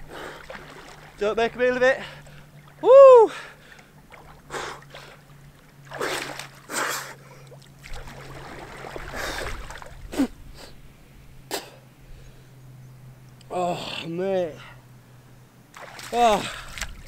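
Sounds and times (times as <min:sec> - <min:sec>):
water splashing and sloshing: 0:00.0 - 0:10.9, 0:15.0 - 0:17.0.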